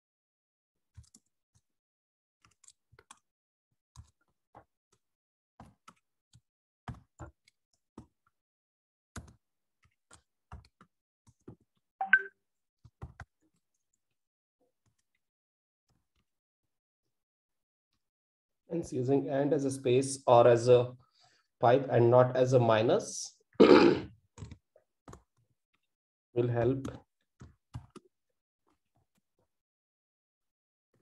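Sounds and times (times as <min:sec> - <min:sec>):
keyboard typing: 0:00.9 - 0:01.3, 0:02.4 - 0:03.2.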